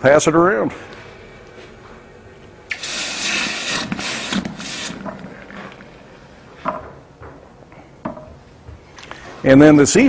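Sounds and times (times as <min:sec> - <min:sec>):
hot axe head hissing in water: 0:02.7 - 0:05.1.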